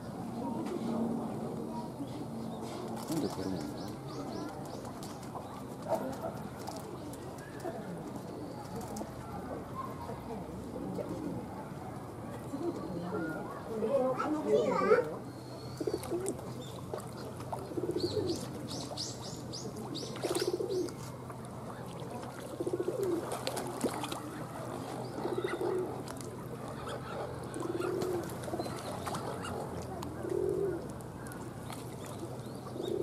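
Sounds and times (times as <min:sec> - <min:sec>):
pigeon cooing: 0:15.8 - 0:16.4, 0:17.7 - 0:18.5, 0:20.0 - 0:21.0, 0:22.6 - 0:23.4, 0:25.1 - 0:26.0, 0:26.8 - 0:29.6, 0:30.2 - 0:30.9, 0:32.7 - 0:33.0.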